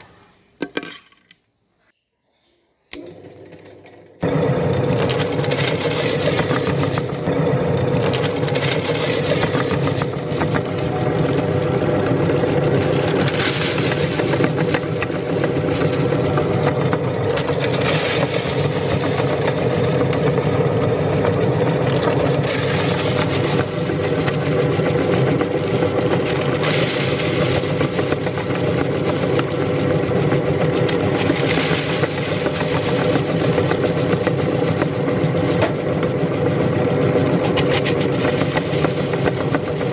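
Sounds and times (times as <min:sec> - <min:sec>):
electric meat grinder humming: 0:03.0 - 0:39.9
cookies crackling being crushed: 0:08.0 - 0:20.4, 0:21.5 - 0:36.2.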